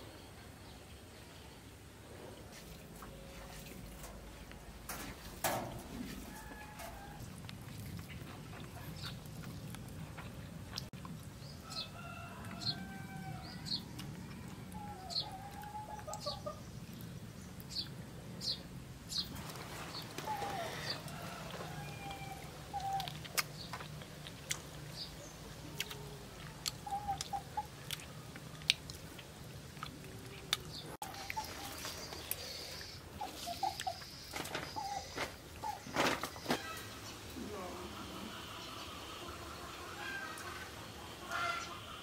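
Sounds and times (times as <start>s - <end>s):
chickens clucking: 11.6s - 16.8s, 19.1s - 42.0s.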